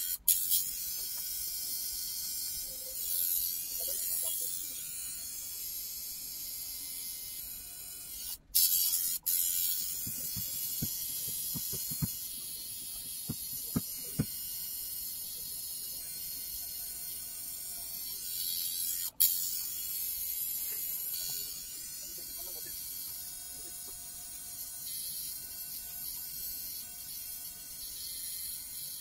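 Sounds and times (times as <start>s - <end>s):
tattoo machine buzzing: 0.0s - 29.0s.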